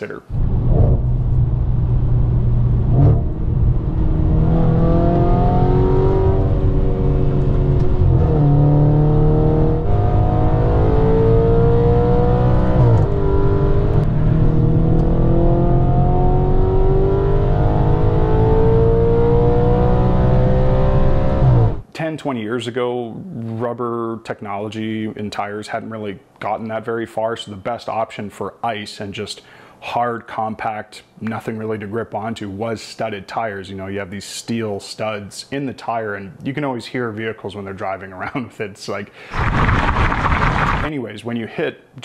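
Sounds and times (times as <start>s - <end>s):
car engine accelerating: 0.3s - 21.8s.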